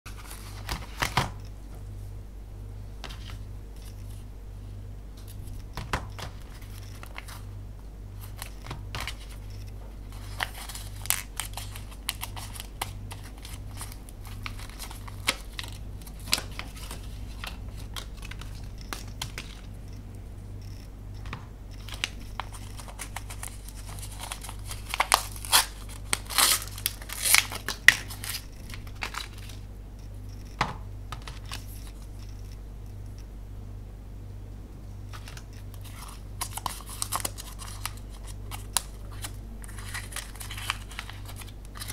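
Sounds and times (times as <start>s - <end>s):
steady low hum: 0.1s - 41.9s
plastic wrappers crinkling: 5.4s - 7.5s, 8.2s - 19.7s, 21.8s - 29.6s, 35.1s - 41.9s.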